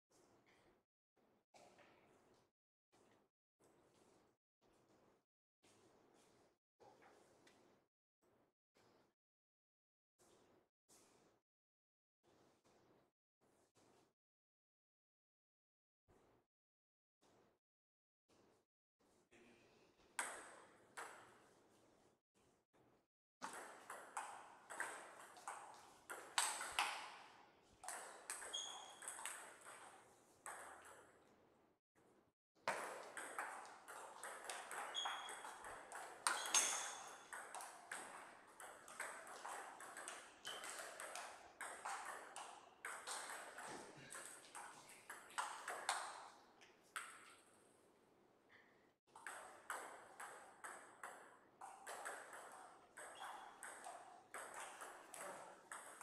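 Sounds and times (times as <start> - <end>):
ball clicking off paddles: 23.4 - 31.1, 32.7 - 46.4
ball bouncing on table: 23.4 - 31.2, 32.7 - 46.4, 49.2 - 56.0.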